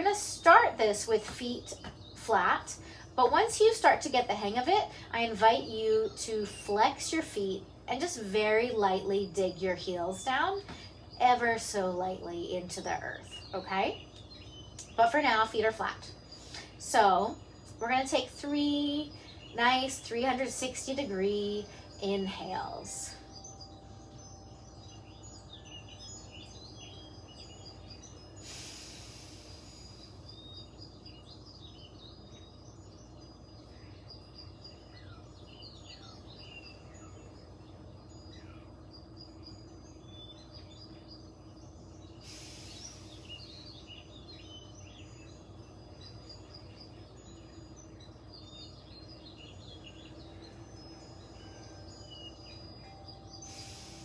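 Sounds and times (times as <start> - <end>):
faint bird chirping: 0.0 - 54.0
low steady hum: 0.0 - 54.0
woman breathing deeply: 28.4 - 30.3, 42.2 - 43.6, 53.4 - 54.0.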